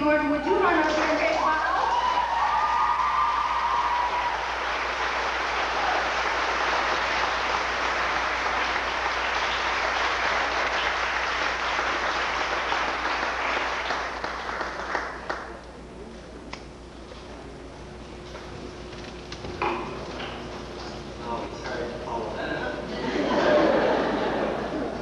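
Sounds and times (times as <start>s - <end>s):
audience applauding: 0.8s - 15.6s.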